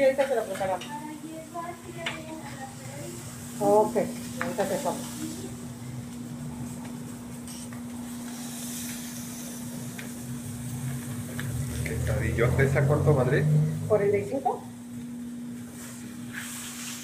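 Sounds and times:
steady low hum: 0.0 - 17.0
meat sizzling on griddle: 1.8 - 13.2, 15.7 - 17.0.

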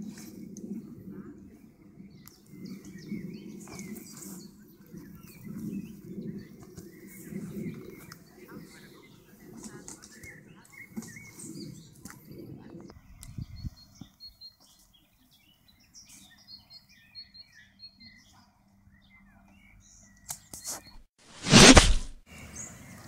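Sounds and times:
small birds chirping: 2.0 - 21.0
sleeping bag rustling: 21.3 - 22.2.

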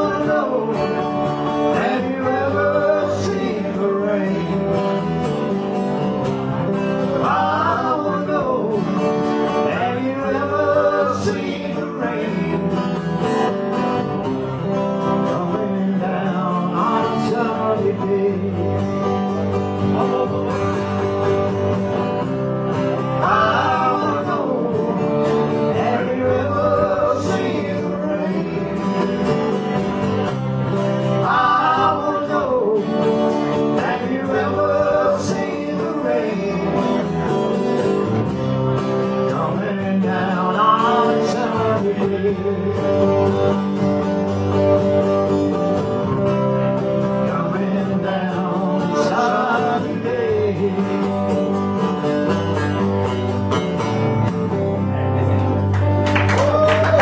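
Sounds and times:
man singing: 0.0 - 5.1, 7.0 - 13.1, 15.2 - 19.2, 19.8 - 20.8, 23.1 - 29.4, 31.1 - 37.3, 39.1 - 43.3, 47.0 - 51.4
country-rock band playing: 0.0 - 57.0.

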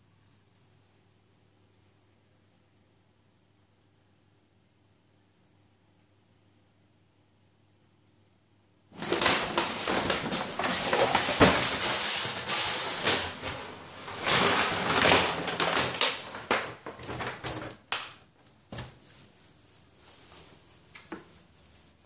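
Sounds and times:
paper bag rustling and crackling: 8.9 - 18.1.

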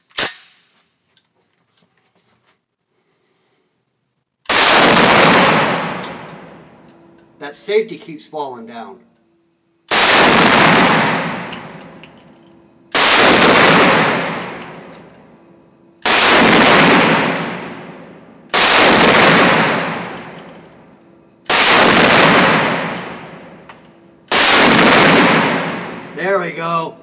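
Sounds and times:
pistol shots echoing: 4.5 - 6.7, 9.9 - 12.1, 12.9 - 15.1, 16.0 - 20.6, 21.5 - 23.6, 24.3 - 26.2.

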